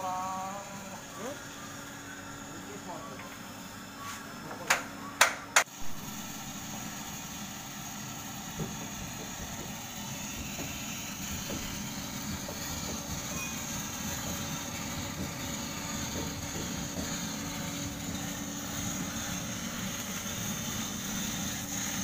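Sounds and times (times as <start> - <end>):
electric blower fan whirring: 0.0 - 22.0.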